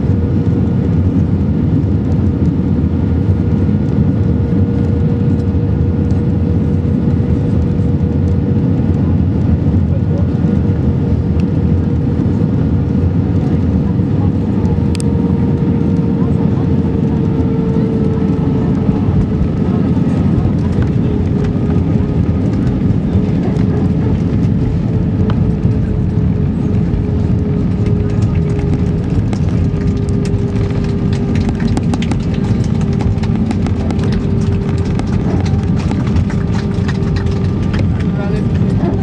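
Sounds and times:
jet engines and airflow rush: 0.0 - 39.0
rapid cabin rattles and clicks: 13.4 - 39.0.

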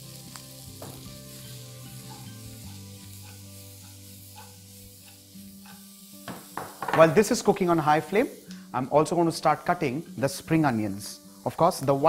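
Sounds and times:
onions sizzling in oil: 0.0 - 12.0
soft background music: 0.0 - 12.0
wok tossing: 2.0 - 5.8.

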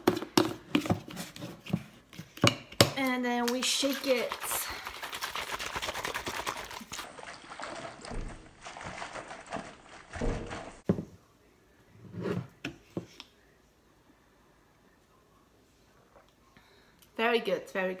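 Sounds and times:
shaker bottle sloshing and rattling: 3.4 - 10.9.

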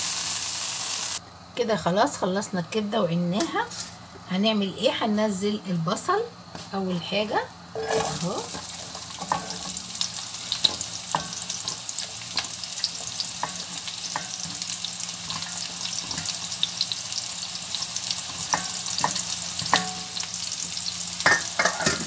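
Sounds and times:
onions sizzling in oil: 0.0 - 2.2, 3.2 - 22.0
spatula scraping a bowl: 7.8 - 9.8.

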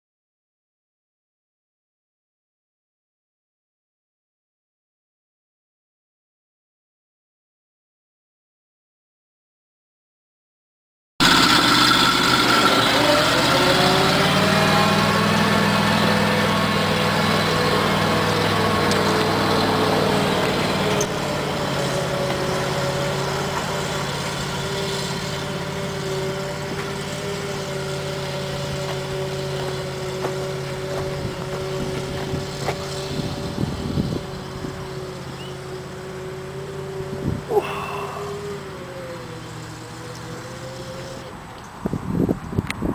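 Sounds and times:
truck engine driving: 11.2 - 42.9.

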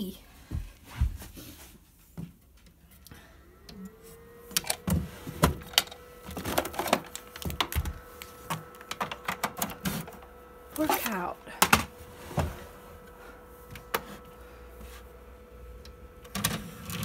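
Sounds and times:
electrical hum: 0.0 - 17.0
plastic cases clattering: 4.6 - 10.2.

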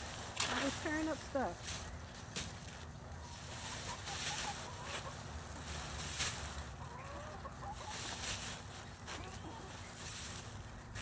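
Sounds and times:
dry leaves rustling: 0.0 - 11.0
soft chicken calls: 3.1 - 5.8, 6.6 - 10.2.

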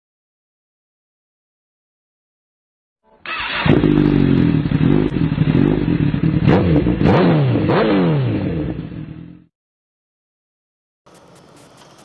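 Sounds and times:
motorcycle engine revving: 3.2 - 9.5.

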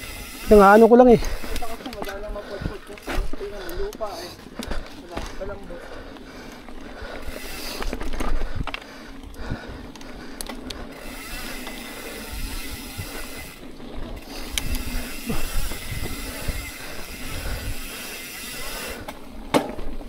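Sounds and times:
bike rattling and clicking: 0.0 - 20.0
bike rolling on dirt trail: 0.0 - 20.0
wind buffeting microphone: 7.2 - 10.9, 12.2 - 18.1.

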